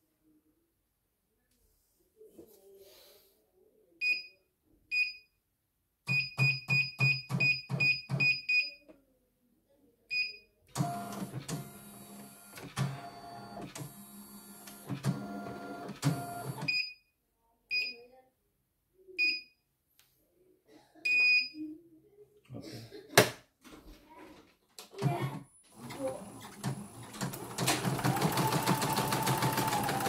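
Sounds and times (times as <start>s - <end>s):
embroidery machine whirring: 10.8s - 16.6s, 25.8s - 30.0s.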